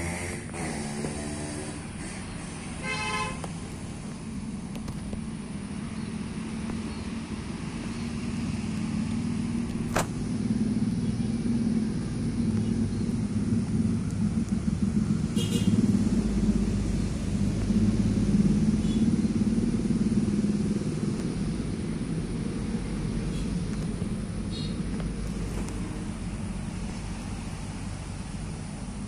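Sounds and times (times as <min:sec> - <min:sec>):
vehicle engine running: 0:00.0 - 0:29.0
short horn toot: 0:02.8 - 0:03.4.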